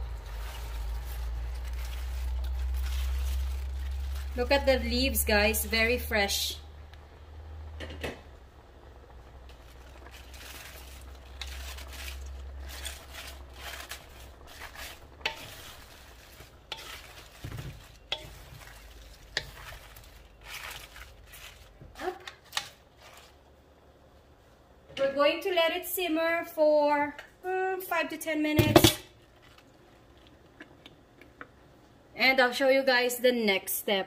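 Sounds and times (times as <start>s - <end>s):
leaves rustling in a wok: 0.0s - 6.6s, 8.8s - 24.4s
low sizzle: 0.0s - 34.0s
spatula scraping a pan: 10.0s - 23.4s.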